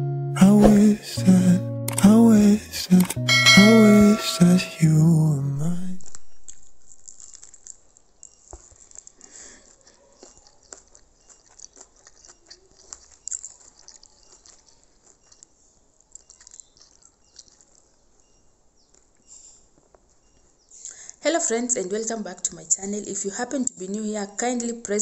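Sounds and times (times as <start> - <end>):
background music: 0.0 - 5.8
soft rustles: 6.5 - 18.1.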